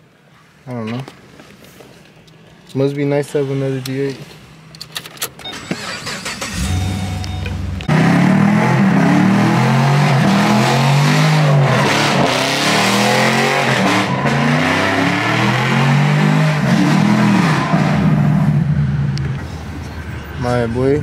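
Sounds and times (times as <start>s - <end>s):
tires screeching: 5.6s - 21.0s
car engine revving: 5.7s - 19.3s.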